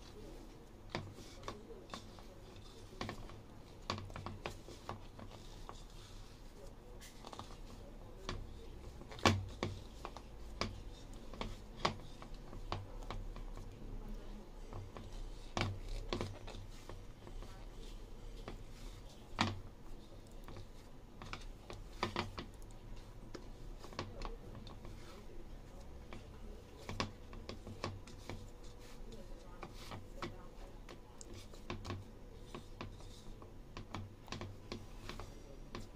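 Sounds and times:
dough knocking in plastic bowl: 0:07.3 - 0:13.7.

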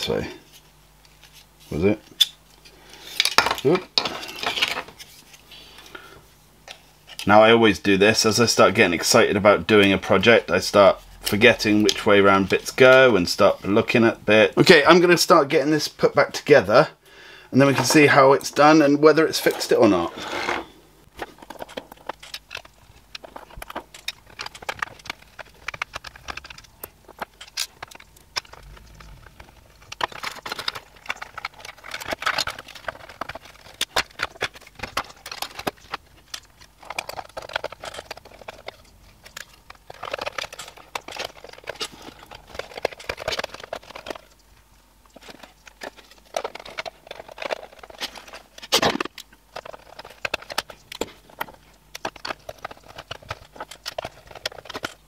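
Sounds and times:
plastic parts clicking and clattering: 0:00.1 - 0:06.0, 0:17.6 - 0:55.0.

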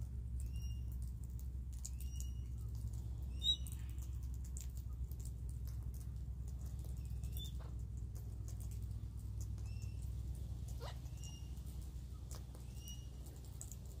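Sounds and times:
steady low rumble: 0:00.0 - 0:14.0
whistled bird notes: 0:00.4 - 0:00.9, 0:03.3 - 0:03.8, 0:07.0 - 0:07.6
beaks pecking in grass: 0:00.4 - 0:14.0.

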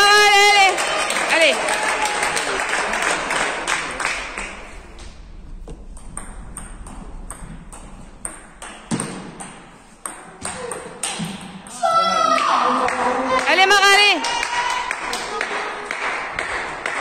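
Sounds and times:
applause: 0:00.4 - 0:04.7, 0:12.4 - 0:17.0
table tennis ball rally: 0:05.9 - 0:17.0.

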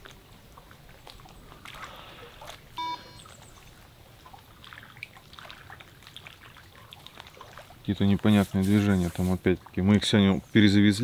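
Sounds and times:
faint trickling water: 0:00.0 - 0:11.0
short pitched beep: 0:02.8 - 0:03.3.

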